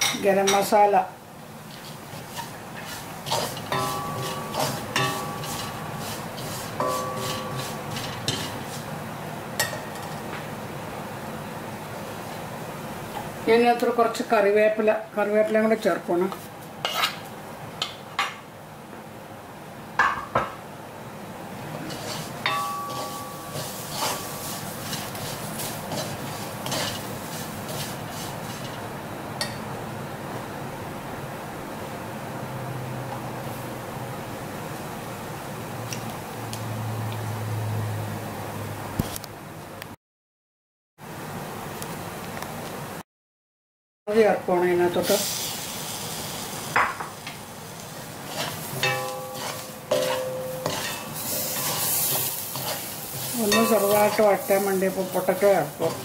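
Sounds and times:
meat frying: 0.7s - 9.8s, 21.6s - 29.1s, 44.9s - 56.0s
spatula scraping metal pan: 1.8s - 8.9s, 16.8s - 17.2s, 21.9s - 28.8s, 48.3s - 56.0s
spatula knock on ringing pan: 3.7s - 5.5s, 22.5s - 23.5s, 48.8s - 50.8s
steady hiss: 45.0s - 46.8s.

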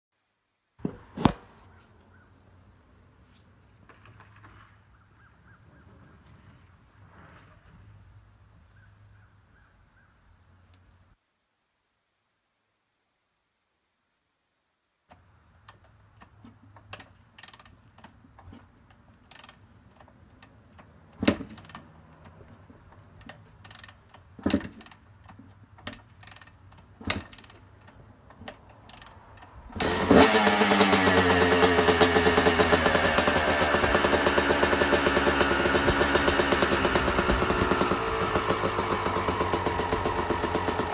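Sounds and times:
kickstarter thumps: 0.8s - 1.6s
dirt bike engine revving: 29.6s - 40.9s.

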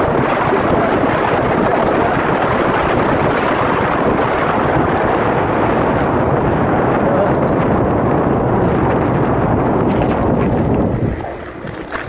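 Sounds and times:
bike tyres rolling on pavement: 0.0s - 12.0s
wind rushing over microphone: 0.0s - 12.0s.

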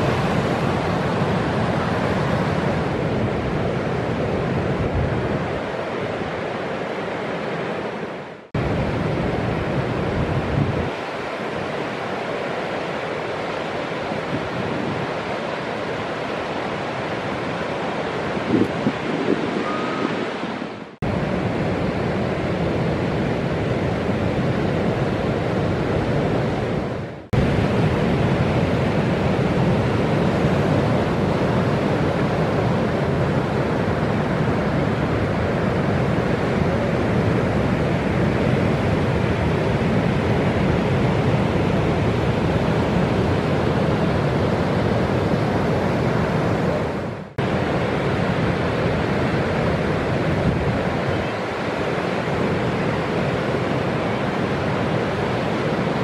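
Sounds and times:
ocean surf breaking: 0.0s - 56.0s
wind buffeting microphone: 8.6s - 11.2s, 16.6s - 56.0s.

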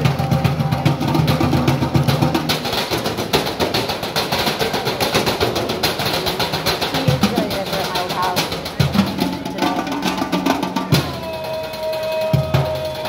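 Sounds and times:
drumsticks beating metal trash cans: 0.0s - 13.0s.

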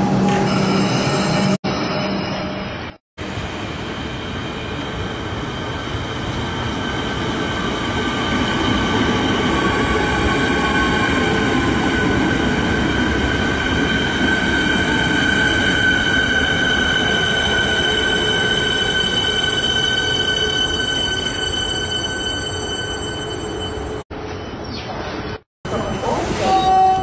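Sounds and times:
high-pitched wheel and brake squeal: 13.7s - 24.0s, 25.7s - 27.0s
train running noise: 25.7s - 27.0s.

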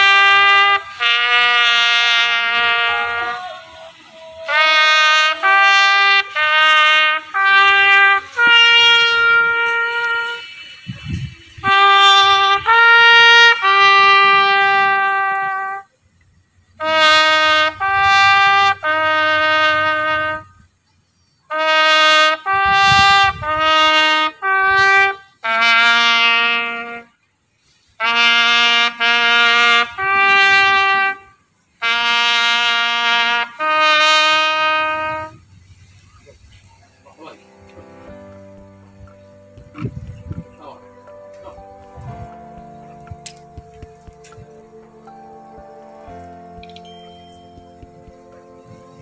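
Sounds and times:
solo trumpet bugle call: 0.0s - 16.0s, 16.8s - 20.7s, 21.5s - 35.4s.

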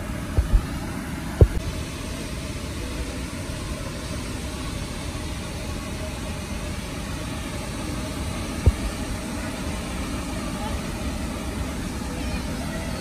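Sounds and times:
waterfall rushing over rocks: 0.0s - 13.0s.

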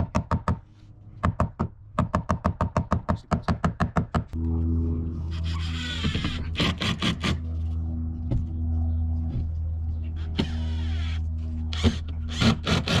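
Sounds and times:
low motor hum: 4.2s - 13.0s.

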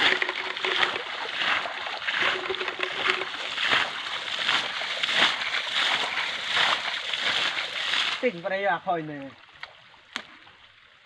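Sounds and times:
water splashing by hand: 0.0s - 8.3s.

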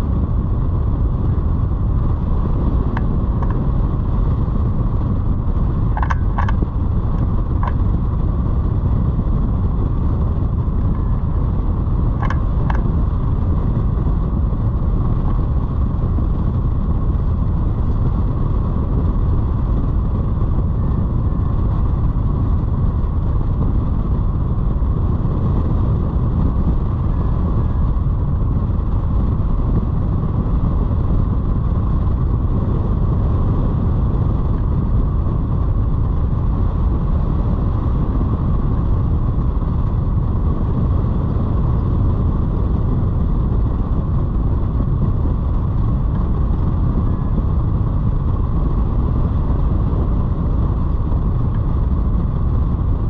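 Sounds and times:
wind rushing over microphone: 0.0s - 53.0s.

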